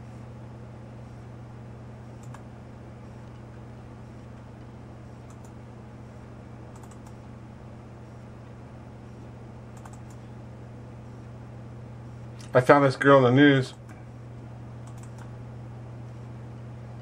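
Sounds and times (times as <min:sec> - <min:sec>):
steady low hum: 0:00.0 - 0:17.0
computer mouse clicks: 0:02.2 - 0:02.4, 0:05.2 - 0:05.6, 0:06.7 - 0:07.3, 0:09.7 - 0:10.2, 0:14.8 - 0:15.3.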